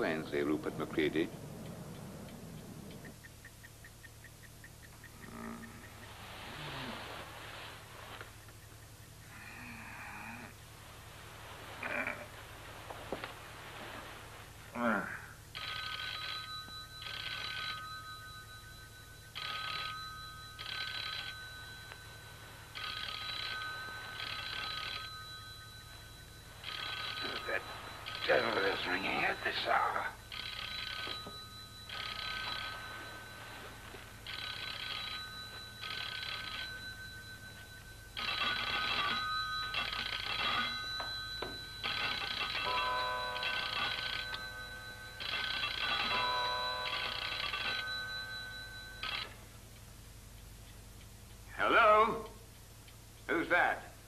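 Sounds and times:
faint steady high tone: 0:09.2 - 0:12.4, 0:13.0 - 0:50.1
telephone bell ringing: 0:15.5 - 0:49.5.

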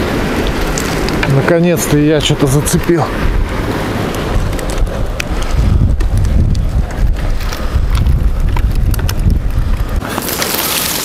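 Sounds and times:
wind buffeting microphone: 0:00.0 - 0:11.0
light clicks and crackles: 0:00.4 - 0:01.5, 0:04.0 - 0:11.0.

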